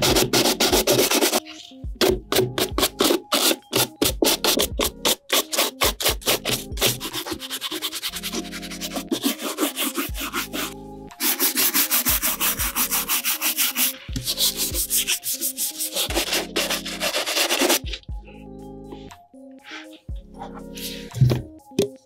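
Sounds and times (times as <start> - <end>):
background music with light beat: 0.0 - 22.0
bristle brush scrubbing leather: 5.9 - 17.8.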